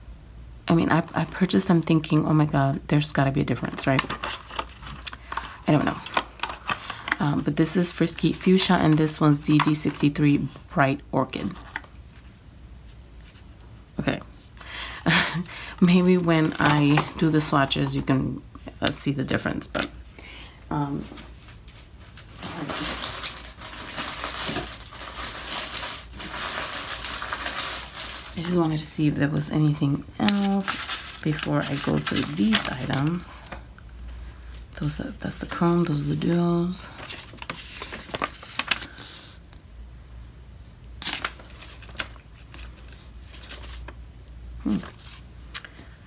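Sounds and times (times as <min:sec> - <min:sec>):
packaging crinkling and rustling: 0:03.5 - 0:10.6, 0:11.3 - 0:18.1, 0:21.0 - 0:39.4, 0:41.0 - 0:44.0.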